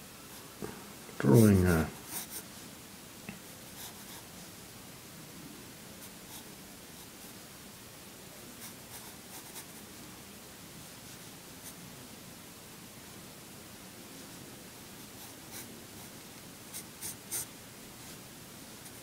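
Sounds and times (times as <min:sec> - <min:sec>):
steady low hiss: 0:00.0 - 0:19.0
pencil scratching on paper: 0:02.0 - 0:02.4.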